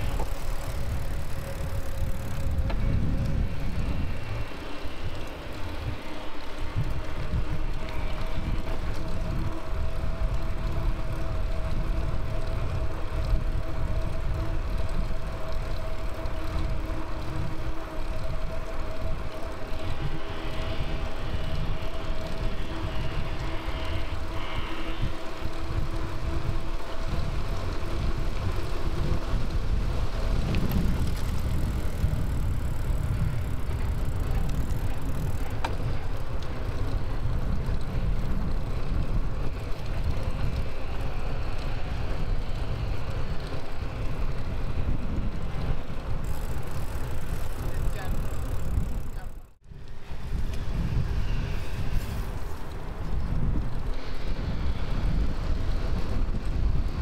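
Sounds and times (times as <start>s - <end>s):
road noise: 0.0s - 57.0s
wind buffeting microphone: 0.0s - 57.0s.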